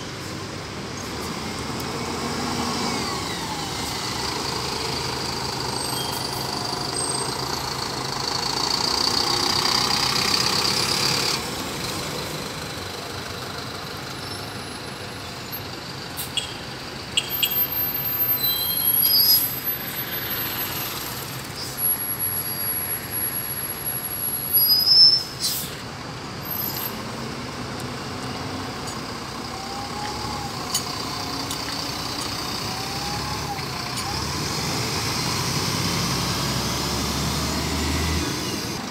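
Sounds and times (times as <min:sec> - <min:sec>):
diesel buses passing: 0:00.0 - 0:38.9
air brakes hissing: 0:24.5 - 0:25.9.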